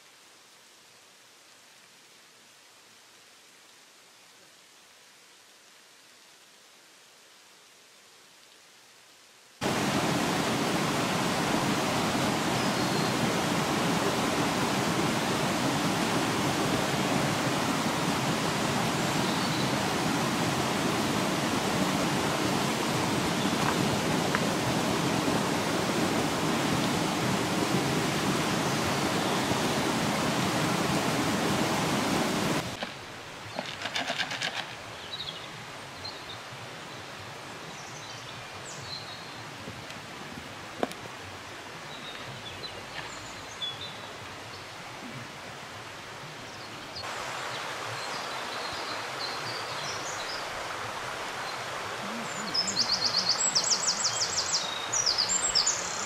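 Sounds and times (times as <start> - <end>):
stream water rushing: 9.6 - 56.0
rustles: 32.6 - 35.4, 42.0 - 43.7.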